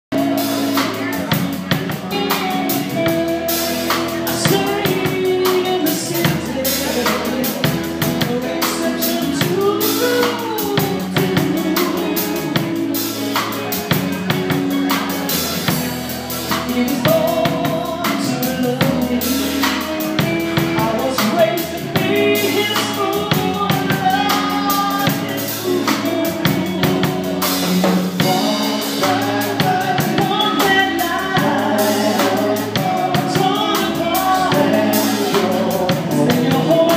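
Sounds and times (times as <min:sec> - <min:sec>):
rock band playing: 0:00.0 - 0:36.9.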